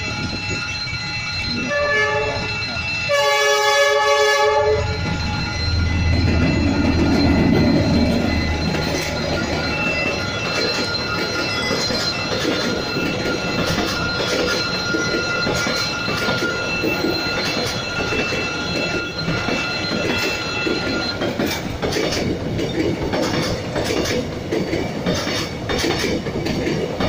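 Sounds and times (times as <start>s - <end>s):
steady high-pitched tone: 0.0s - 21.8s
train wheels rumbling on rails: 0.0s - 27.0s
wheels clattering over rail joints: 6.1s - 27.0s.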